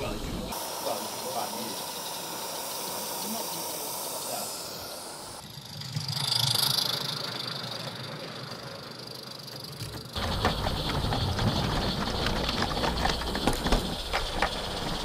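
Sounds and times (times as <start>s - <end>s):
steam hiss: 0.0s - 8.0s, 10.2s - 15.0s
wheels rumbling on track: 5.3s - 15.0s.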